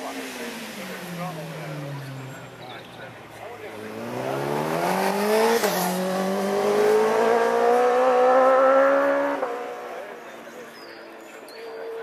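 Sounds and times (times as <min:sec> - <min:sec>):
motorcycle engine accelerating: 0:01.1 - 0:10.1.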